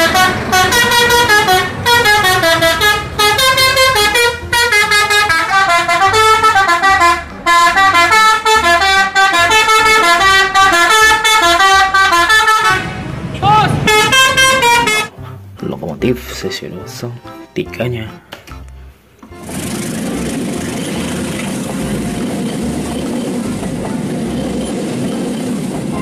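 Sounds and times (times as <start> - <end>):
musical horn playing a tune: 0.0 - 15.2.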